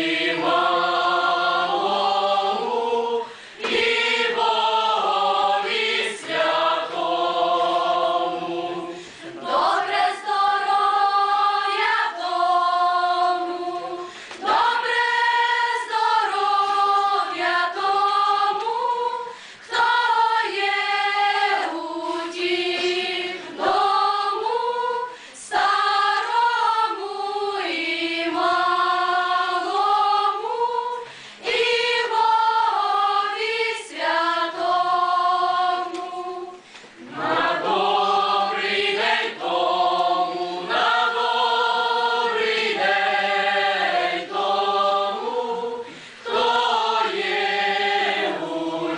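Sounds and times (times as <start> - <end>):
choir singing unaccompanied: 0.0 - 48.9.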